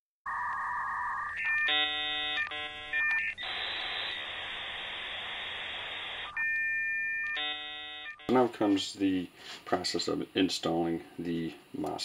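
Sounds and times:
high electronic tone: 0:00.3 - 0:08.5
buzzy chord-like tones: 0:07.3 - 0:08.6
steady hiss: 0:08.4 - 0:12.0.

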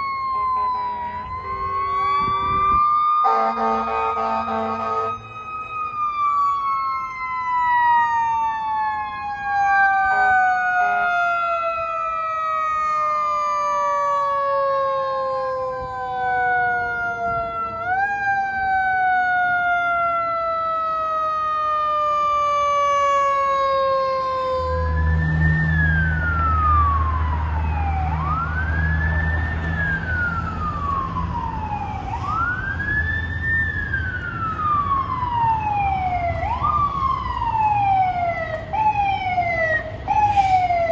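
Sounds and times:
wailing siren: 0:00.0 - 0:40.9.

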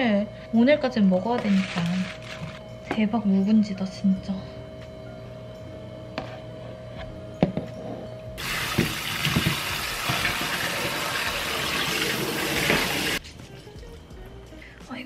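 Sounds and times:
water streaming into sink bowl: 0:08.4 - 0:13.2.

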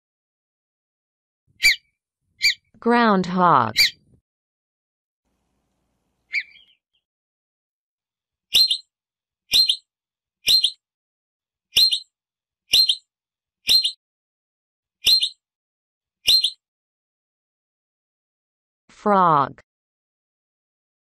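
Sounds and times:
groundhog alarm whistles: 0:01.6 - 0:01.8, 0:08.5 - 0:08.9, 0:09.5 - 0:10.8, 0:11.8 - 0:12.1, 0:12.7 - 0:13.1, 0:13.7 - 0:14.0, 0:15.0 - 0:15.4, 0:16.3 - 0:16.6.

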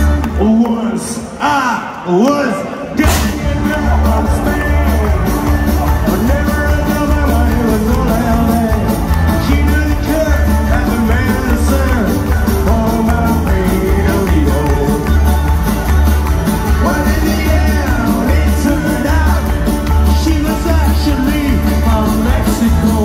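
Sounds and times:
live rock band playing: 0:00.0 - 0:00.5, 0:03.0 - 0:23.0
person singing: 0:03.0 - 0:23.0.

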